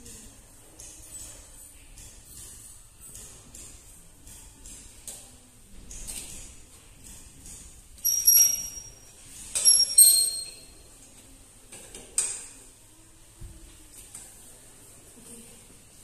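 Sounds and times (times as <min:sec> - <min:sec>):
sharp metallic clinks: 0:08.0 - 0:10.8.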